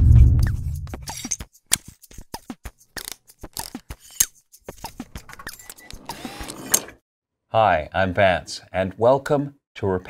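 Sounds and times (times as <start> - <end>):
sharp clicks and ticks: 0.5 - 6.8.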